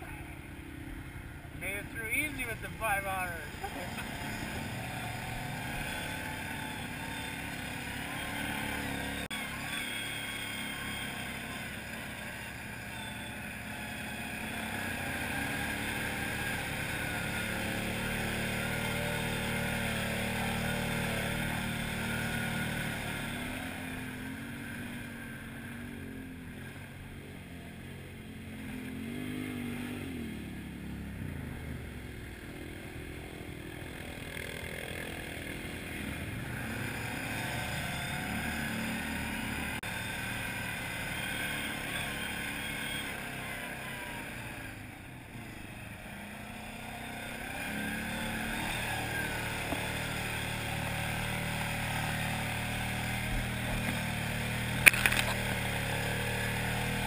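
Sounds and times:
atv engine running: 0.0s - 57.0s
vehicle moving through grass: 45.4s - 57.0s.

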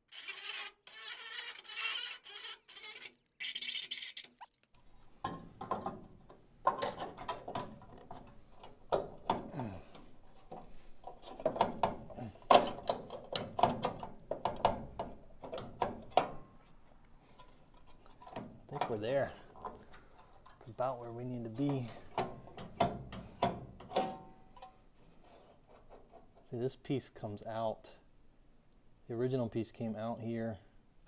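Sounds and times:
cordless grinder grinding metal: 0.0s - 3.6s
sheet metal clicks and knocks: 5.3s - 9.5s, 10.4s - 16.4s, 21.7s - 24.8s.

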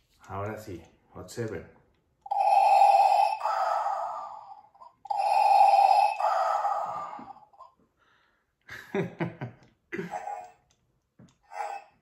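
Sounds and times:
breathing sound from toy speaker: 2.3s - 8.5s, 11.5s - 12.0s.

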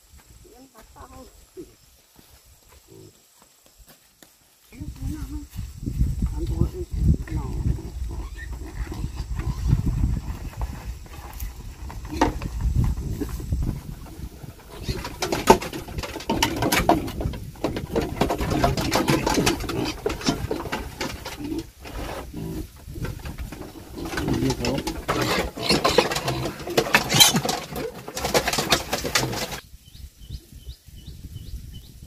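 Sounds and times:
pigs grunting: 2.8s - 3.2s, 7.3s - 29.6s.

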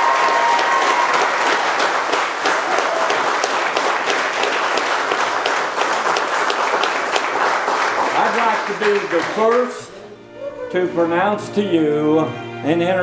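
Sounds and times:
crowd clapping: 0.0s - 10.0s.

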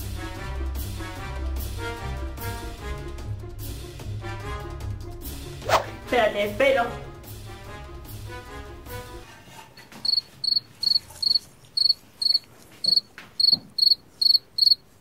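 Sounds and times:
background music: 0.0s - 9.8s
cricket-like chirps: 10.0s - 14.8s.

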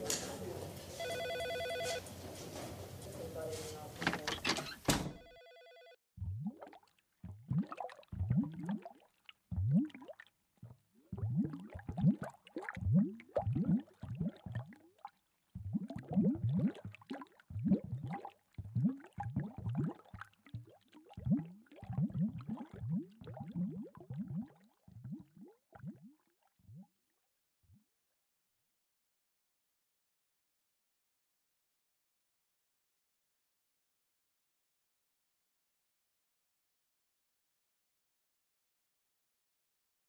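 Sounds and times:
water cooler bottle glugging: 15.6s - 25.4s.

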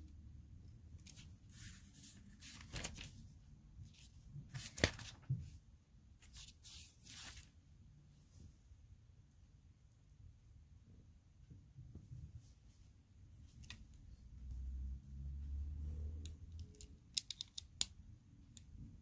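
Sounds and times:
lego pieces rustling and clicking: 16.6s - 17.9s.

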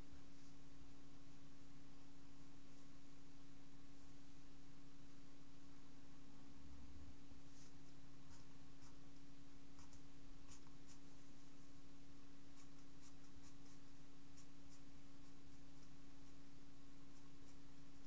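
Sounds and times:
low hum and hiss: 0.0s - 18.0s
felt-tip pen scratching on paper: 7.5s - 9.1s, 9.8s - 11.6s, 12.4s - 17.7s.

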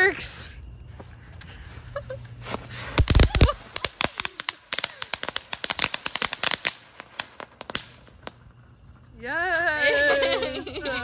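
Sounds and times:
firework crackling pops: 2.1s - 8.7s
firework bangs: 2.4s - 8.7s.

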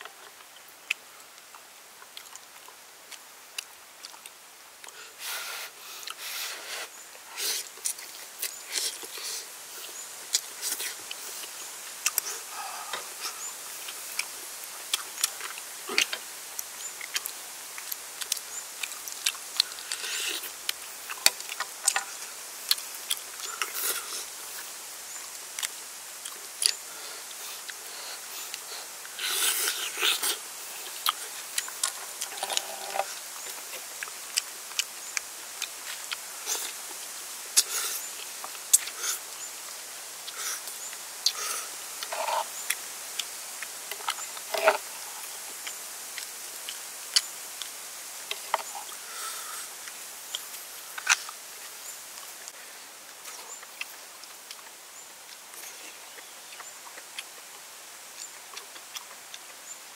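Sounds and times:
wet chewing clicks and smacks: 10.3s - 12.3s, 13.8s - 22.1s, 25.5s - 26.8s, 29.8s - 37.0s, 53.2s - 59.7s.

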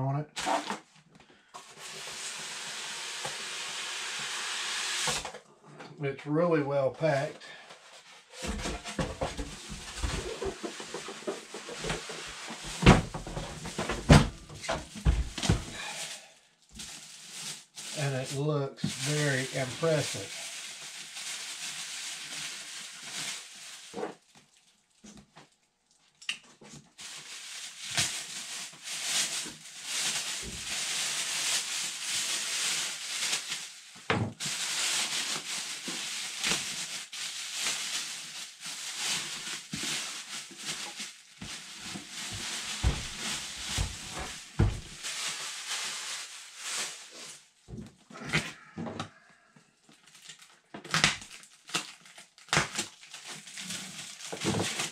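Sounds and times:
plastic wrap crinkling: 0.4s - 3.6s, 7.5s - 49.2s, 49.9s - 54.9s.

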